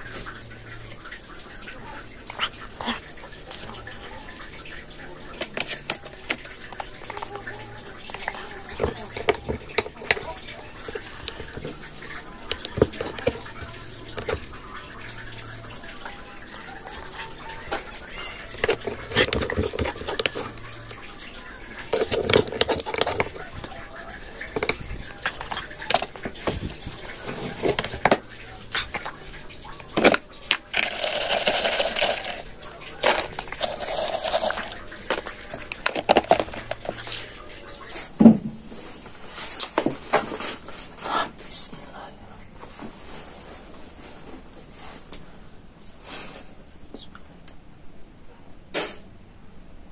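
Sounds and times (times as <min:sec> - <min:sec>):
crackers rattling in plastic jar: 0:05.0 - 0:14.8, 0:16.8 - 0:29.2, 0:29.8 - 0:37.4
spoon scraping in mortar: 0:05.3 - 0:14.7, 0:16.8 - 0:29.2, 0:29.8 - 0:37.4.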